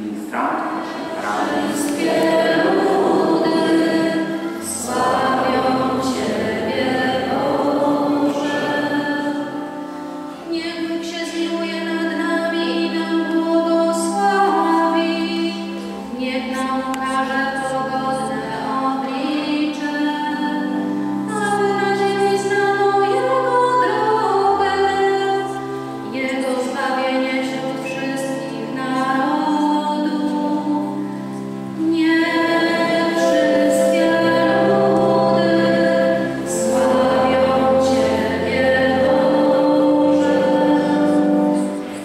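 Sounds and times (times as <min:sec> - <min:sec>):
sustained low accompanying notes: 0:00.0 - 0:10.6
choir singing a hymn: 0:00.0 - 0:42.0.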